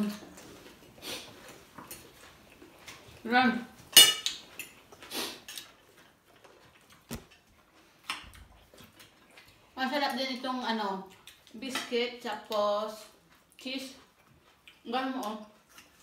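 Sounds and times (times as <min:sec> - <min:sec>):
cutlery and plates clinking: 0:03.9 - 0:04.8.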